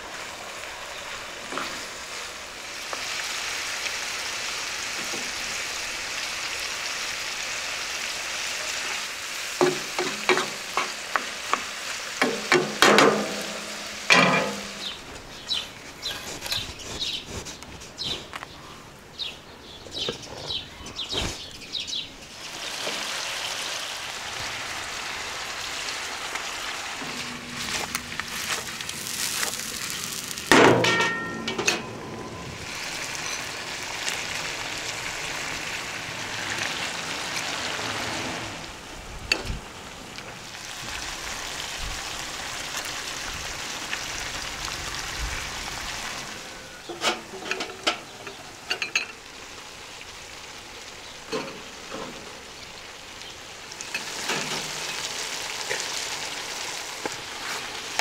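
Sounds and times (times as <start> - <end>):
food sizzling in pan: 0.0 - 15.6, 22.3 - 30.6, 31.3 - 38.9, 39.6 - 47.4, 48.0 - 58.0
utensil scraping pan: 27.0 - 33.5.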